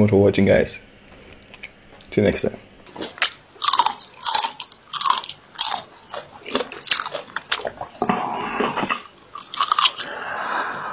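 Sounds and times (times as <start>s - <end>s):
crisp bites and chewing: 2.9s - 8.0s, 8.8s - 10.1s.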